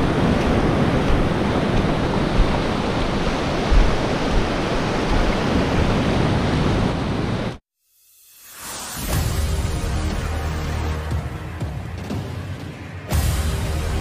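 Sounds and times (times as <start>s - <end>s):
sea water washing over reef: 0.0s - 7.6s
wind rumble on microphone: 0.0s - 7.6s.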